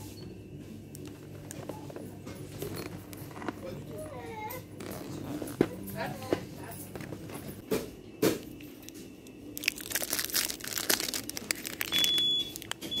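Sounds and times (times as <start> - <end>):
foil wrapper crinkling: 9.5 - 13.0.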